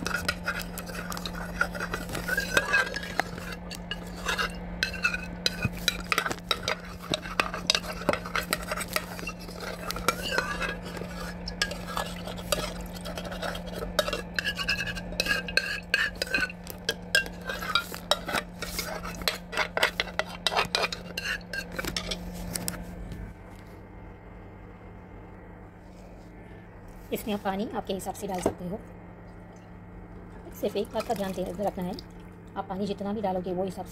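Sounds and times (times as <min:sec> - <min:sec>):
spoon scraping and clinking pot: 0:00.0 - 0:22.7, 0:30.6 - 0:31.6
steady low hum: 0:00.0 - 0:33.9.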